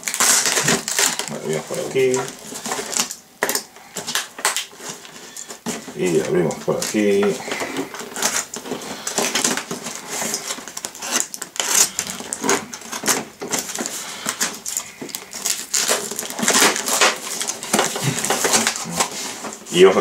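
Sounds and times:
cardboard box being opened: 4.0 - 19.6.

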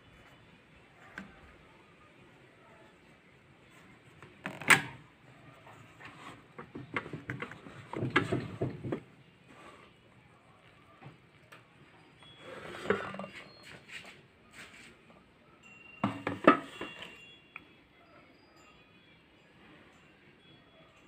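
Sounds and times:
plastic drawer rattling and scraping: 6.3 - 9.1.

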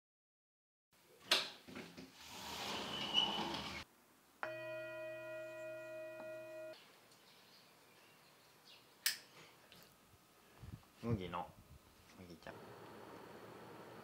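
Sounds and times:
sharp scrape: 2.2 - 3.8
altar bell ringing: 4.4 - 6.8.

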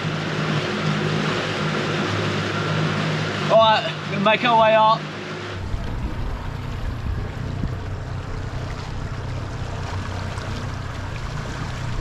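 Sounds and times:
outboard motor idling: 0.0 - 12.0
water: 0.0 - 12.0
wind noise: 5.6 - 9.4.

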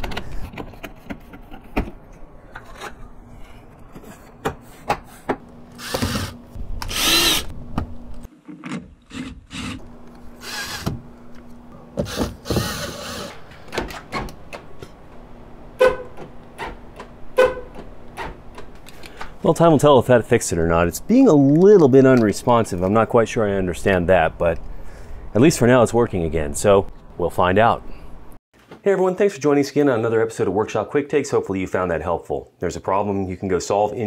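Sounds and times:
cordless drill whirring: 5.8 - 7.5, 10.4 - 10.9, 12.1 - 13.4.

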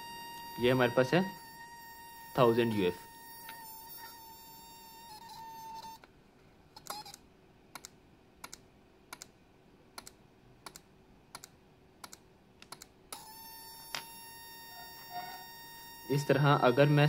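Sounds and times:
steady high whine: 0.0 - 6.1, 13.2 - 17.0.

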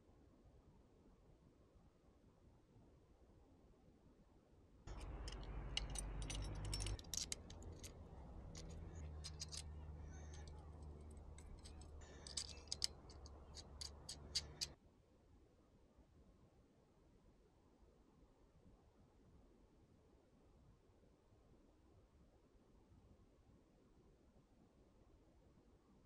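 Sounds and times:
low steady hum: 4.9 - 14.8
metallic clicks of tools: 4.9 - 14.8.

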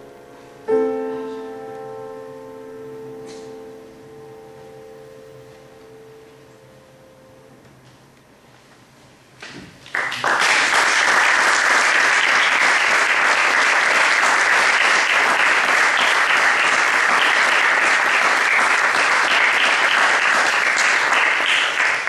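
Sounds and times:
audience applause: 9.8 - 22.0.

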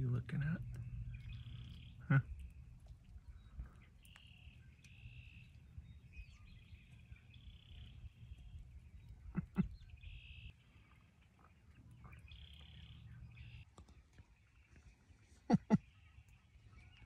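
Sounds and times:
low wind rumble: 0.0 - 13.6.

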